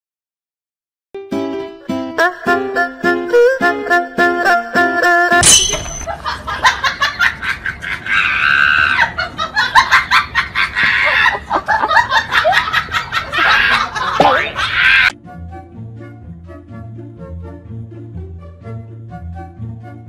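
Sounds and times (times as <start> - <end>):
light music: 1.2 - 5.6, 15.1 - 20.0
loud human laughter: 6.1 - 15.1.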